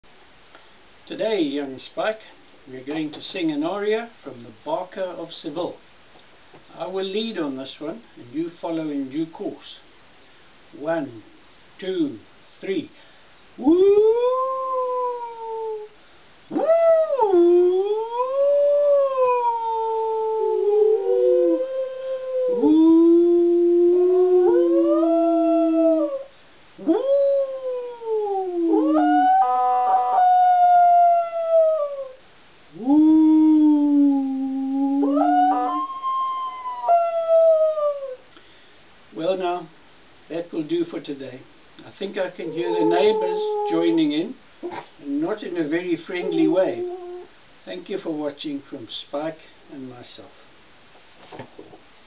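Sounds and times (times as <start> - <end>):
dog howling: 13.6 - 15.9, 16.5 - 32.2, 32.8 - 38.2, 42.2 - 44.8, 46.1 - 47.3
man howling: 13.6 - 15.9, 16.5 - 32.2, 32.8 - 38.2, 42.2 - 44.3, 46.1 - 47.3.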